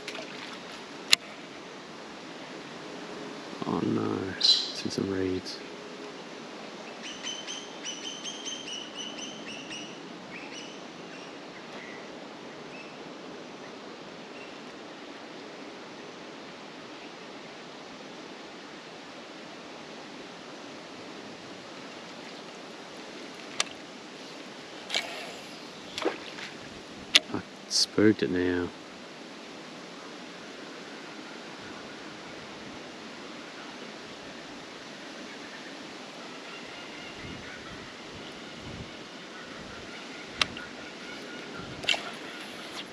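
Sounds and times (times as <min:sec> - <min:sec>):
steady outdoor hiss: 0:00.0 - 0:42.9
bird chirping: 0:04.4 - 0:04.8.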